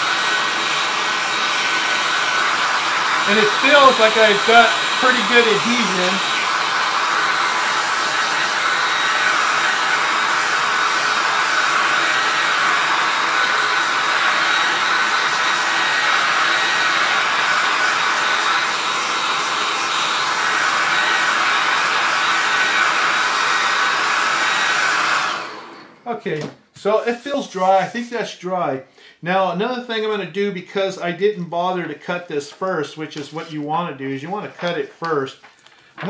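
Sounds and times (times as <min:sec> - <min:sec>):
hair dryer running: 0:00.0 - 0:26.1.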